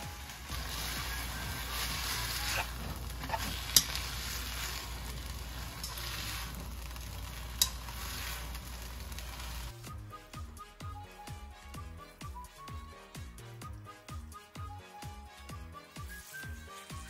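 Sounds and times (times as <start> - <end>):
noodles sizzling in a wok: 0.0 - 9.9.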